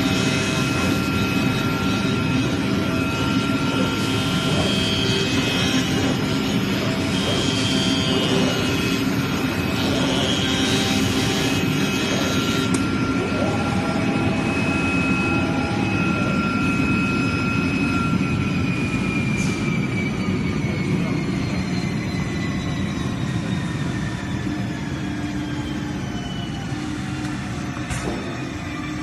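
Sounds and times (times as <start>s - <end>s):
cloth-cutting machine rushing: 0.0s - 16.8s
thin whining tones: 0.0s - 29.0s.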